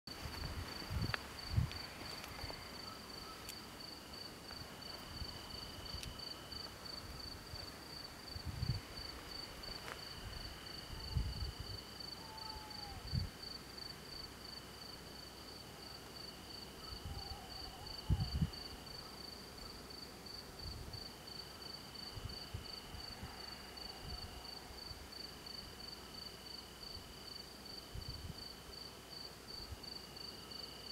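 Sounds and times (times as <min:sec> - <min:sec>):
crickets chirping: 0:00.1 - 0:30.9
insect trilling: 0:10.4 - 0:13.2.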